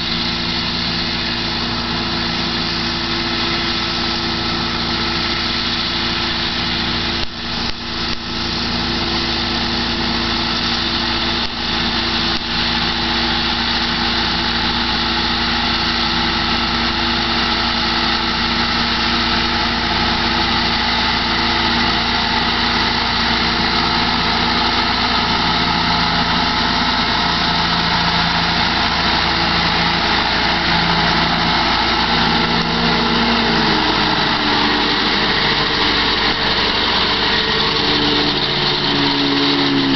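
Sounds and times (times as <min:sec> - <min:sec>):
mower discs whirring: 0:00.0 - 0:39.9
tractor diesel engine running: 0:00.0 - 0:39.9.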